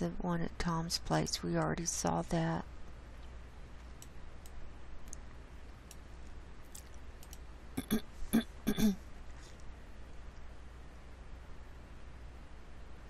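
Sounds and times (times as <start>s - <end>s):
computer mouse clicks: 3.8s - 5.2s, 5.8s - 7.5s
woman clearing her throat: 7.8s - 9.0s.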